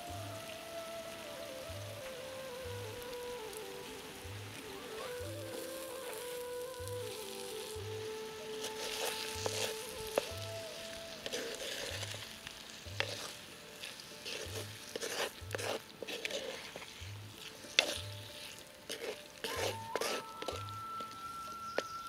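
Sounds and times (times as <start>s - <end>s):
background music with low beat: 0.0s - 8.3s, 9.2s - 22.0s
curry sizzling in a pot: 0.0s - 22.0s
spoon scraping a clay pot: 8.6s - 22.0s.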